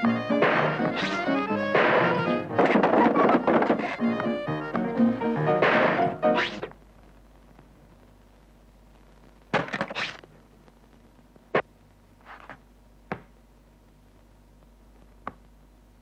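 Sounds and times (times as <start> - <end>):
cartoon scuffling knocks: 0.0 - 4.9, 12.3 - 13.3.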